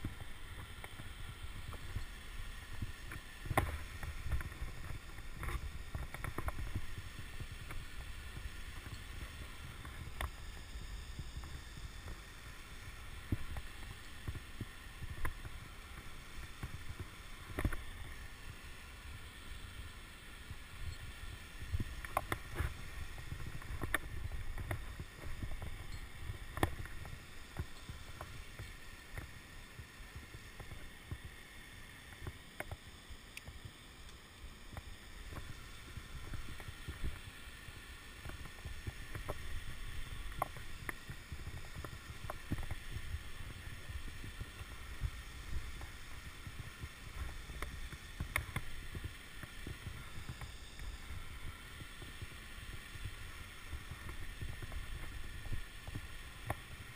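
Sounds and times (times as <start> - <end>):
clicks and scrapes on rock: 3.1 - 7.0, 21.8 - 29.4.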